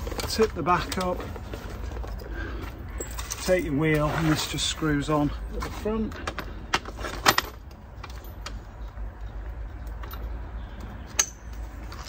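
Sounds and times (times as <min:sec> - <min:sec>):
low rumble of road traffic: 0:00.0 - 0:12.0
sharp metallic clicks and clinks: 0:06.1 - 0:12.0.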